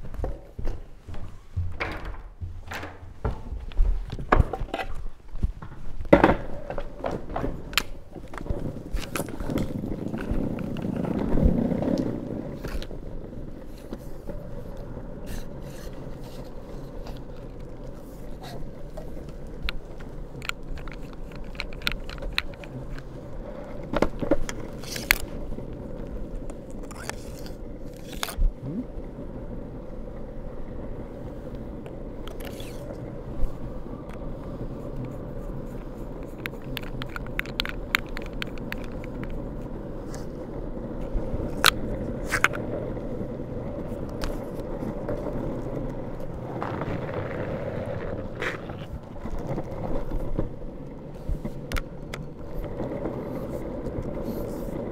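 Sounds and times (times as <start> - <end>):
longboard wheels rolling on pavement: 0.0 - 54.9
clicks and knocks: 0.2 - 9.7.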